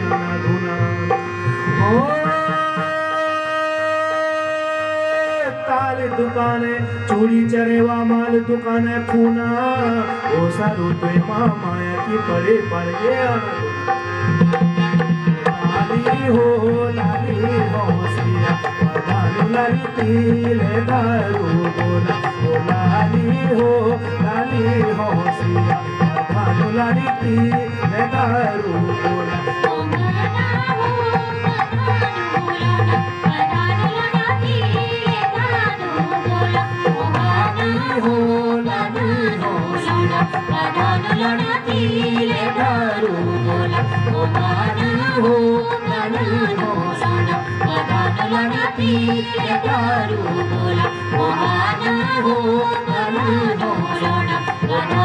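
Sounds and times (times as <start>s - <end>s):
instrumental folk dance music: 0.0s - 55.0s.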